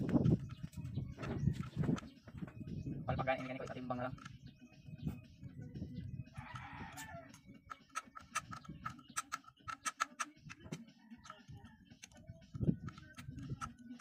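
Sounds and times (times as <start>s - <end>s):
metallic clicks of hand tools: 7.3s - 11.4s.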